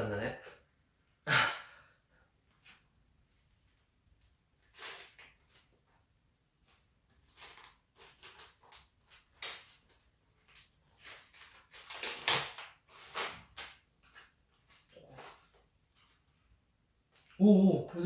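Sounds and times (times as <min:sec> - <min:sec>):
plastic film crinkling: 0:04.6 - 0:05.8, 0:06.7 - 0:16.2.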